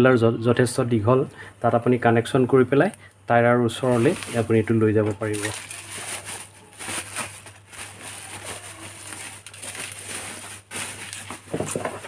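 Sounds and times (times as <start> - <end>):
bubble wrap crinkling: 3.7 - 12.0.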